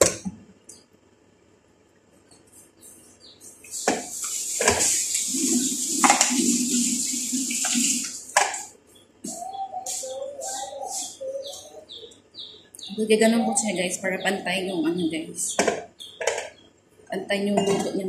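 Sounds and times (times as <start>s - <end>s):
steady rushing hiss: 3.6s - 8.7s, 9.8s - 11.3s.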